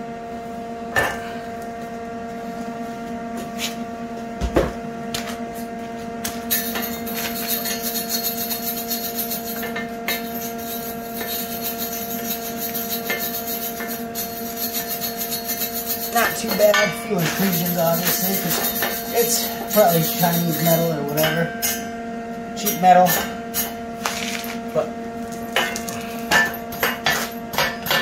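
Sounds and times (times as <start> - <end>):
electrical hum: 0.0 - 28.0
wire brush scratching metal: 6.5 - 21.3.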